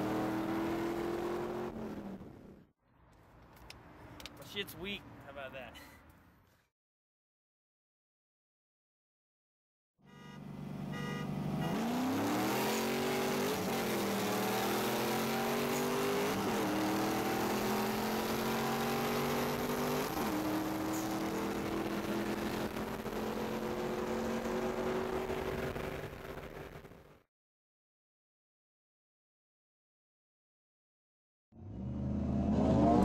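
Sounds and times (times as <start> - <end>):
car engine accelerating hard: 0.0 - 2.4, 10.6 - 27.1, 31.6 - 33.0.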